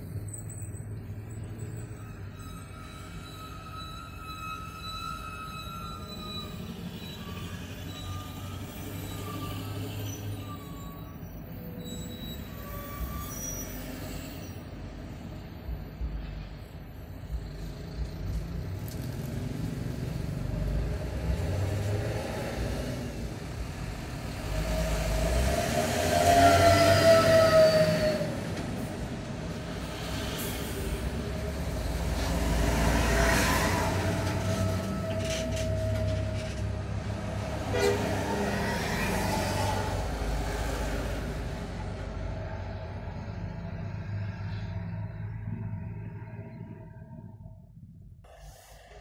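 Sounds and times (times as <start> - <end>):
heavy vehicles idling: 27.8 - 37.7.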